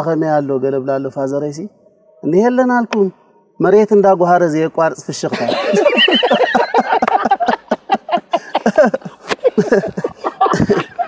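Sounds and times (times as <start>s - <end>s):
men laughing: 5.3s - 11.0s.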